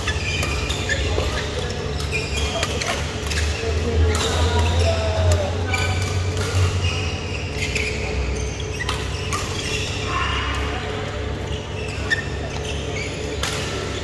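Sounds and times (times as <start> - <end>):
shoe squeaks: 0.0 - 5.1, 5.7 - 14.0
racket hitting shuttlecock: 5.3 - 6.8.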